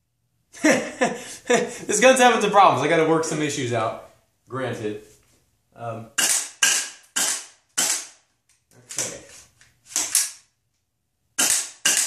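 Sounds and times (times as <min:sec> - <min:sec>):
airsoft gun shots: 0:06.2 - 0:08.2, 0:11.4 - 0:12.0.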